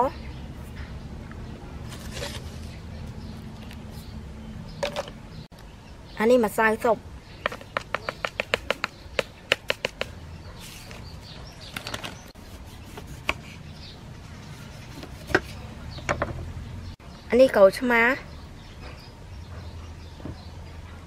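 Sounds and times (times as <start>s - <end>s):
packet tapped and shaken: 7.5s - 10.1s
knife cutting on chopping board: 12.5s - 13.6s, 14.6s - 15.6s.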